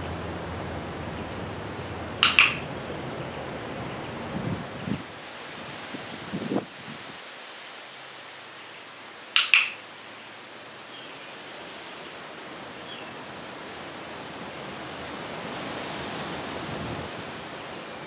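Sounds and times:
steady background hiss: 0:00.0 - 0:18.0
training clicker double click: 0:02.2 - 0:02.6, 0:09.4 - 0:09.8.

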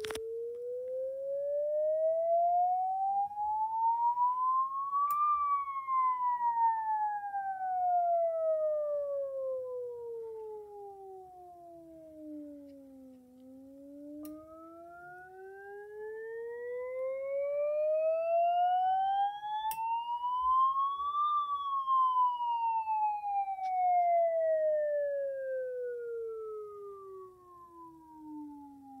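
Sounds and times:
pure test tone sweeping: 0:02.6 - 0:08.4, 0:13.4 - 0:24.8
faint higher tones: 0:03.2 - 0:29.0.

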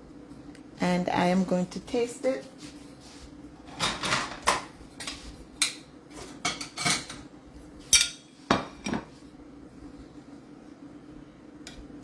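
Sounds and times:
cutlery clinking on a plate: 0:07.9 - 0:09.0.

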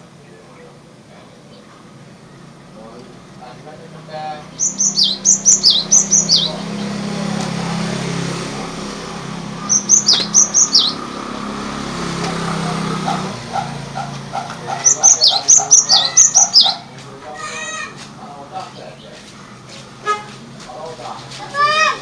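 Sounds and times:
bird singing high descending notes: 0:04.4 - 0:07.3, 0:08.2 - 0:12.4, 0:14.8 - 0:16.8.

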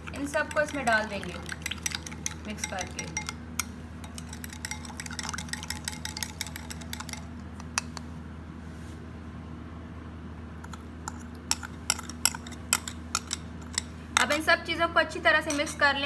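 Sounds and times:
spoon scraping bowl: 0:00.0 - 0:07.3, 0:10.7 - 0:14.4
steady low hum: 0:00.0 - 0:16.0
metal spoon clinking glass bowl: 0:00.1 - 0:07.3, 0:10.7 - 0:14.5, 0:15.5 - 0:15.8.

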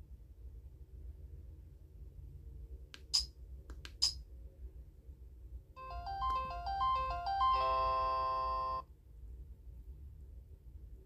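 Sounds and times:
phone power-off jingle: 0:05.8 - 0:08.8.

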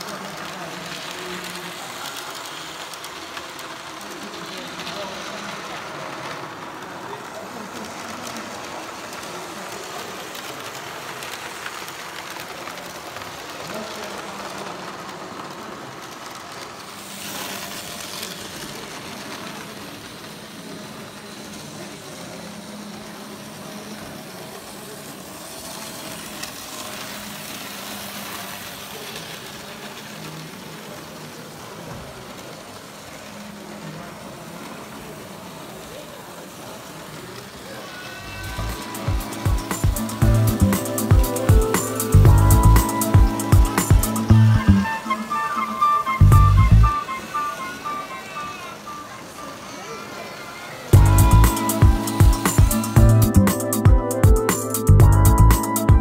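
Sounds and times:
model train electric motor hum: 0:00.0 - 0:53.2
indistinct background voices: 0:00.0 - 0:56.0
steady hall noise: 0:00.0 - 0:56.0.

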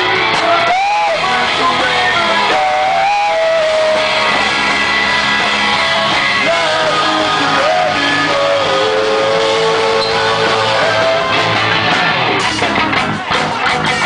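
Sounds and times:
electric guitar melody sliding: 0:00.0 - 0:14.0
live rock band playing: 0:00.0 - 0:14.0
drums hitting: 0:09.4 - 0:14.0.

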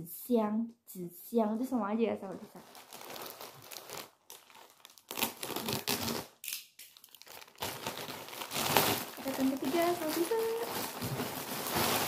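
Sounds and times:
plastic bag crinkling and tearing: 0:02.4 - 0:12.0.

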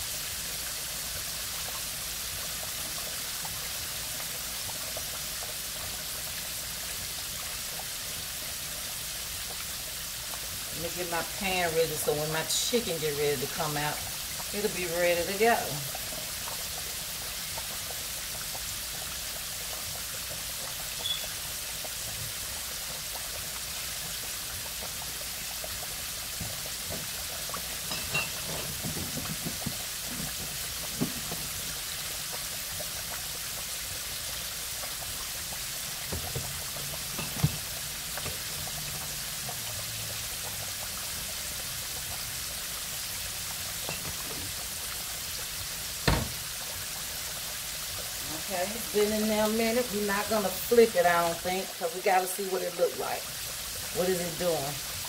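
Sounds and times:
chicken deep-frying in hot oil: 0:00.0 - 0:55.0
light pops and knocks: 0:28.4 - 0:31.5.

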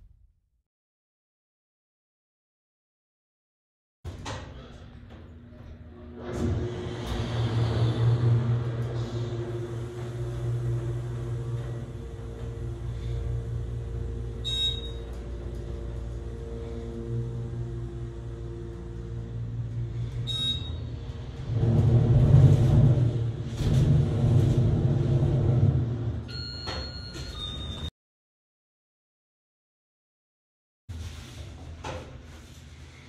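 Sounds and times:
elevator running with low hum: 0:04.1 - 0:27.9
loud low rumble: 0:06.1 - 0:26.3.

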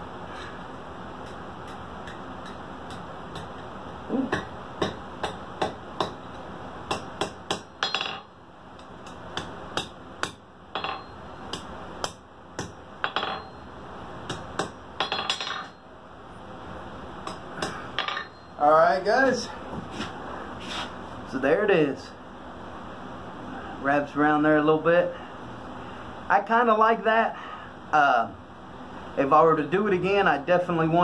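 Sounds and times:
steady background hiss: 0:00.0 - 0:31.0
hammer striking steel anvil: 0:06.9 - 0:08.3, 0:09.0 - 0:13.6, 0:14.3 - 0:15.8, 0:17.2 - 0:18.6.

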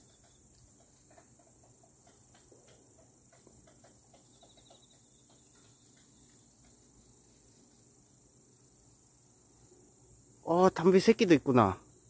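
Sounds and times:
soft ticks: 0:00.0 - 0:07.4
insect chirping trill: 0:00.0 - 0:12.0
insect high buzz: 0:00.0 - 0:12.0.

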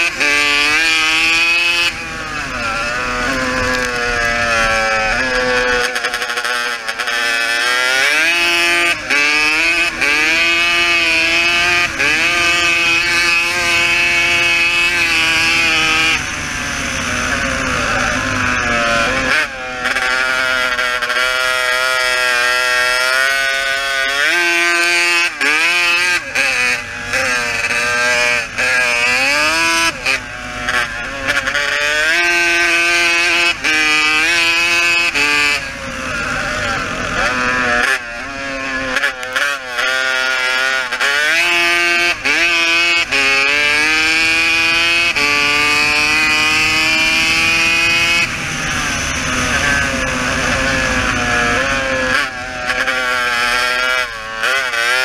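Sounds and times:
quad bike engine revving: 0:00.0 - 0:55.0.

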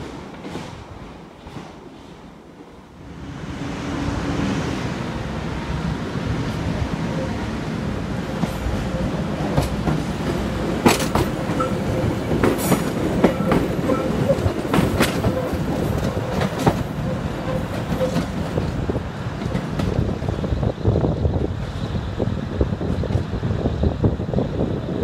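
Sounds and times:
train rumbling past: 0:00.0 - 0:25.0
train wheel clacks: 0:08.3 - 0:20.3.

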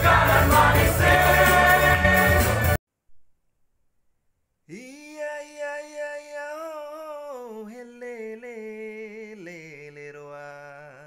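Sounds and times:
man singing unaccompanied: 0:04.7 - 0:11.0.

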